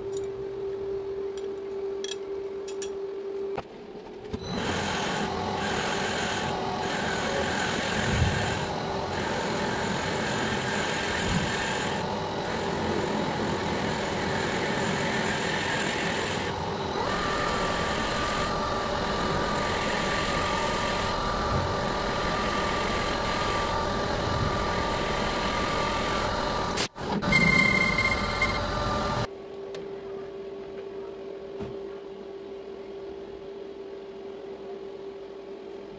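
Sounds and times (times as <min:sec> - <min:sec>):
low steady hum: 0:00.0 - 0:04.6
metal lathe cutting metal: 0:04.4 - 0:29.3.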